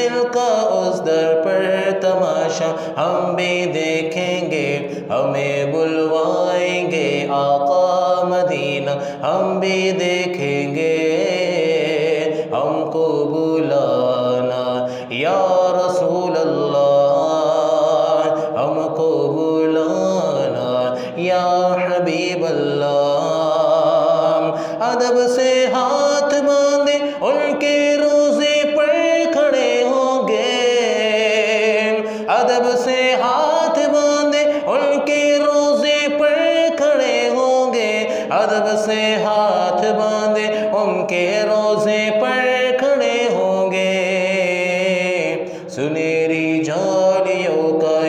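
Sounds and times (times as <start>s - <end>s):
man singing unaccompanied: 0.0s - 48.0s
singer breathing: 2.7s - 3.0s, 4.8s - 5.1s, 9.0s - 9.3s, 12.2s - 12.6s, 14.8s - 15.1s, 18.3s - 18.6s, 20.9s - 21.2s, 24.5s - 24.8s, 27.0s - 27.2s, 32.0s - 32.3s, 34.4s - 34.7s, 38.0s - 38.3s, 40.5s - 40.7s, 45.4s - 45.8s.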